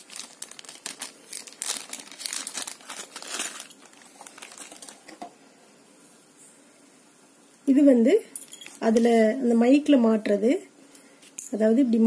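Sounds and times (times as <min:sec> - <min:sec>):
plastic bag crinkling: 0:00.0 - 0:05.3.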